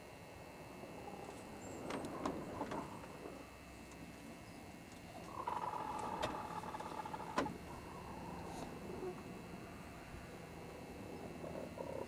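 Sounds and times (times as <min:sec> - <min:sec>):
hen drawn-out call: 0:05.3 - 0:09.2.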